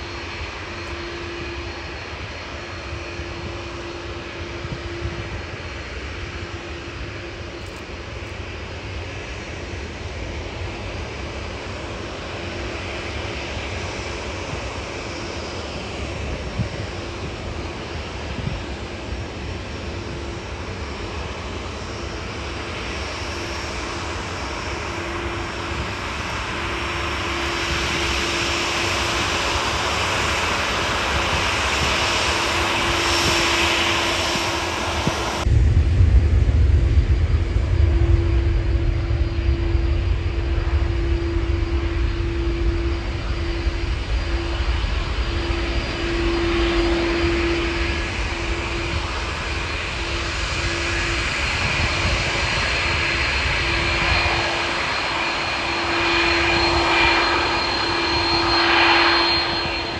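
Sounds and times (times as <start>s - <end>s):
jet engines hissing and whining: 0.0s - 59.9s
strong deep rumble: 31.2s - 59.9s.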